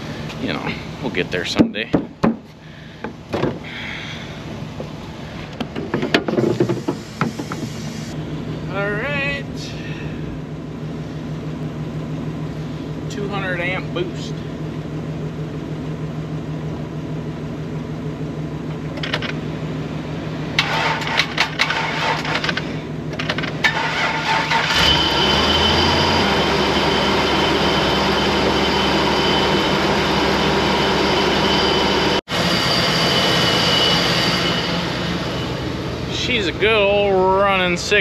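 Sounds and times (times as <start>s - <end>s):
truck engine cranking and idling: 0.0s - 38.0s.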